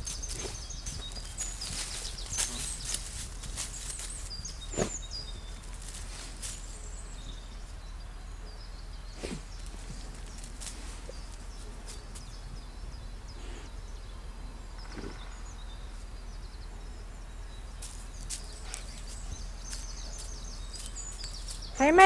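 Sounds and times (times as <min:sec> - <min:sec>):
dog digging in dirt: 0:00.0 - 0:07.3, 0:17.8 - 0:21.7.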